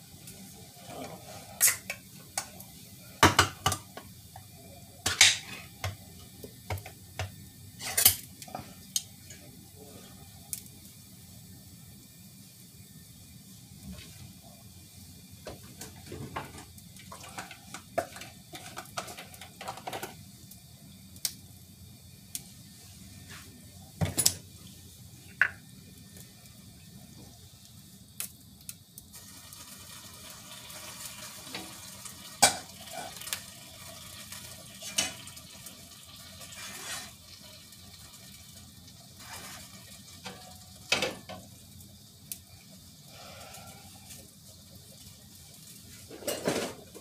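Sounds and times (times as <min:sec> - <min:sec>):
faint steady hum: 0:00.0 - 0:47.0
pots and pans knocking: 0:03.2 - 0:03.9.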